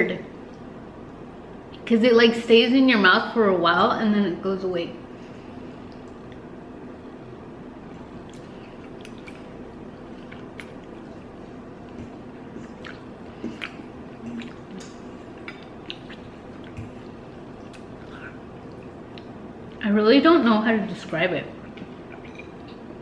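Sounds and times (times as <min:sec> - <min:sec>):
person chewing and slurping: 0:08.0 - 0:19.3, 0:21.6 - 0:22.8.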